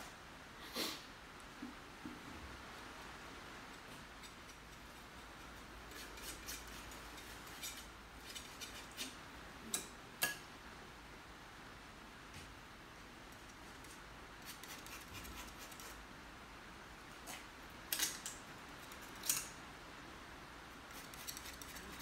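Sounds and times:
painting tool scratching on canvas: 14.4 - 16.0, 20.9 - 22.0.

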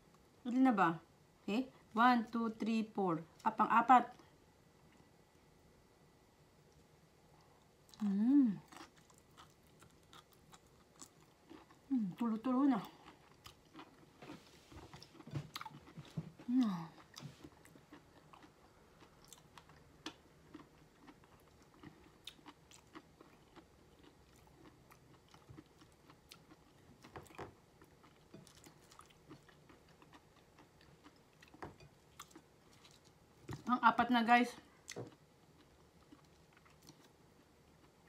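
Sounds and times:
chewing: 6.7 - 12.2, 12.8 - 33.7, 34.8 - 38.0.

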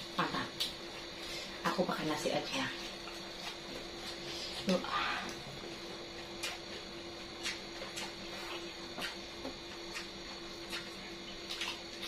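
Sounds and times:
steady low hum: 0.0 - 12.0
mouth chewing smacks and clicks: 6.1 - 12.0.

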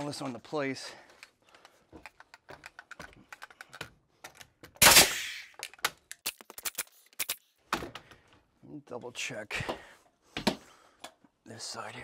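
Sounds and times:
tool and lumber clicks and knocks: 1.2 - 4.8
nail gun shot: 4.8 - 5.5.

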